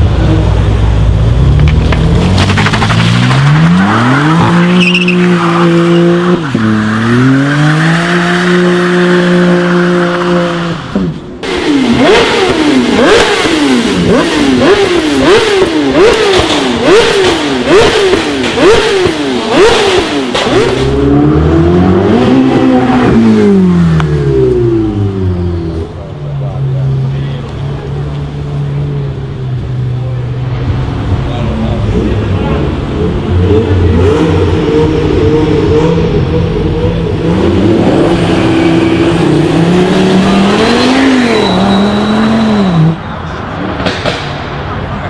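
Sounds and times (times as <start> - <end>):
car engine revving: 0.0 - 45.0
exhaust pops: 1.6 - 3.6, 43.7 - 44.6.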